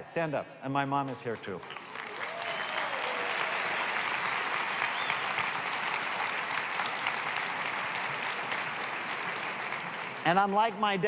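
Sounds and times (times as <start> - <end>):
audience applause: 1.6 - 11.0.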